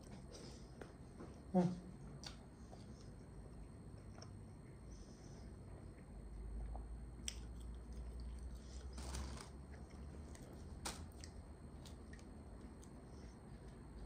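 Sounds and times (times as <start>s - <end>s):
person chewing: 5.9s - 13.7s.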